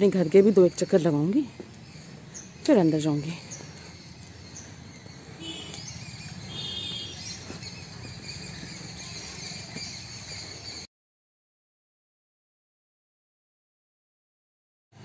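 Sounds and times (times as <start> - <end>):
small birds chirping: 0.0 - 10.9
bird trill: 1.8 - 10.9.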